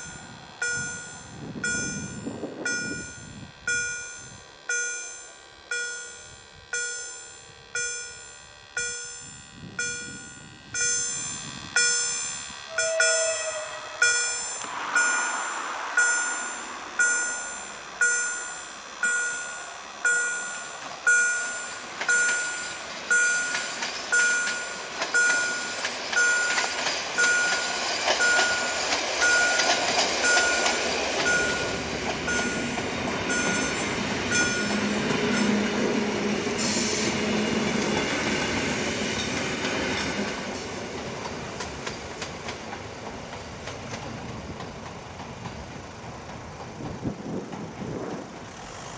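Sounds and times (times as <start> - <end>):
level crossing warning bell: 0.0 - 38.7
train wheels clacking on rails: 6.8 - 48.9.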